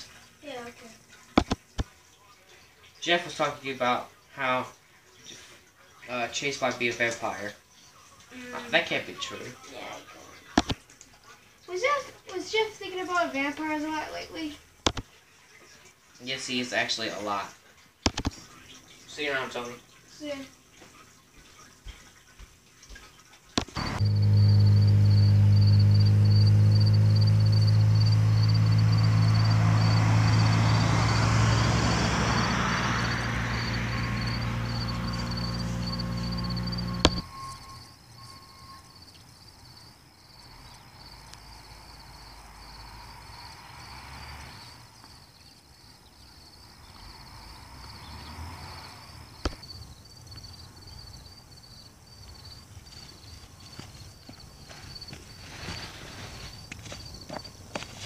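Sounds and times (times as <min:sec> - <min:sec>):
insects chirping: 0:23.6 - 0:58.0
loud steady low hum: 0:23.8 - 0:29.6
rushing noise: 0:26.6 - 0:37.2.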